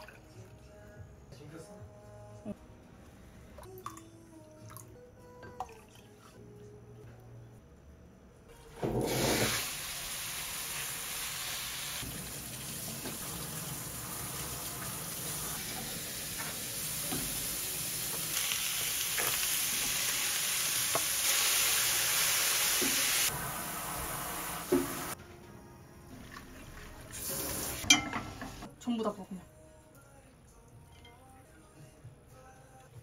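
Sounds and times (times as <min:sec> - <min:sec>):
food sizzling in a pan: 0:08.7 - 0:25.2, 0:27.0 - 0:28.7.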